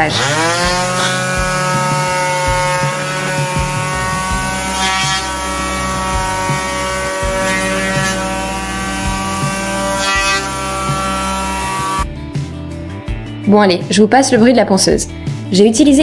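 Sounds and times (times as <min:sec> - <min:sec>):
sanding pad rasping on wood: 0:00.0 - 0:12.0
electric palm sander running: 0:00.0 - 0:12.1.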